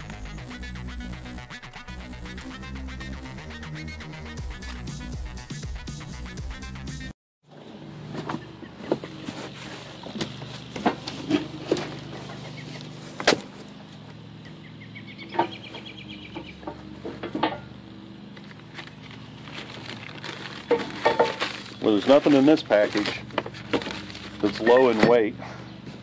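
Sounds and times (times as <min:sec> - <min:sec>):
steady low hum: 0:00.0 - 0:04.9
cardboard rustling: 0:18.4 - 0:25.3.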